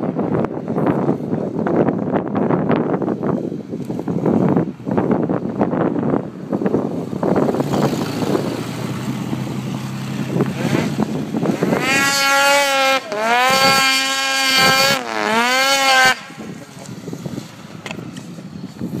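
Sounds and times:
snowmobile engine revving: 0:07.2 - 0:17.8.

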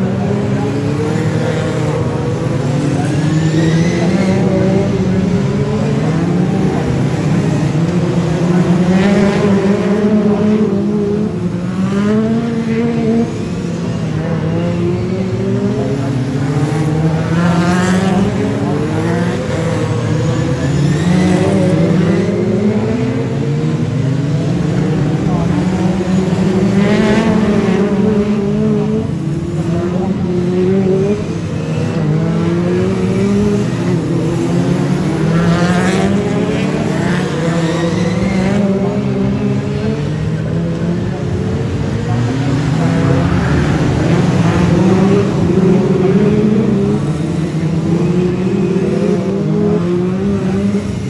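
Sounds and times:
race car engines: 0:00.0 - 0:51.0.

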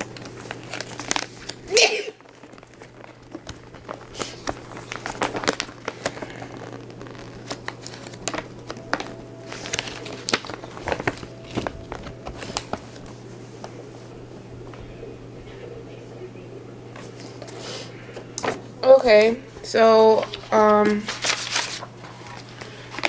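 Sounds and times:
paper crinkling and rustling: 0:00.0 - 0:14.8, 0:19.8 - 0:23.0
low steady hum: 0:00.0 - 0:23.0.

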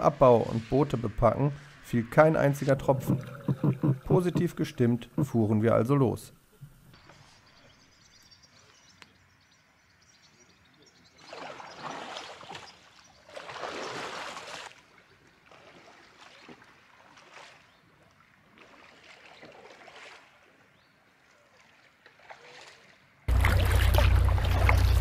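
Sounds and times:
paddle strokes splashing: 0:02.5 - 0:04.7, 0:11.2 - 0:25.0.

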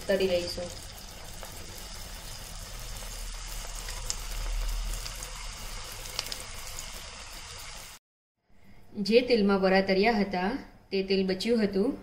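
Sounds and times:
food deep-frying in oil: 0:00.0 - 0:08.0
oil popping: 0:00.8 - 0:07.0.

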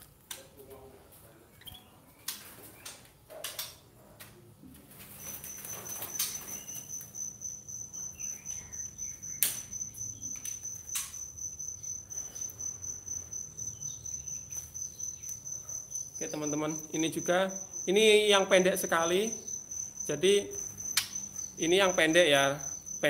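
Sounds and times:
bird cages knocking and clicking: 0:04.8 - 0:23.0
cricket chirping trill: 0:04.9 - 0:23.0.

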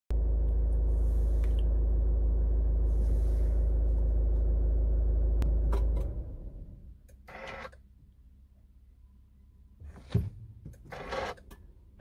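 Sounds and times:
car engine idling: 0:00.1 - 0:07.1.

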